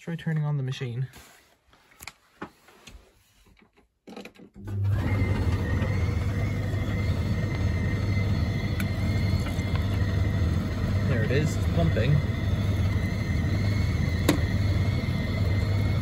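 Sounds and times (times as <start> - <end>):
pump humming: 4.6 - 16.0.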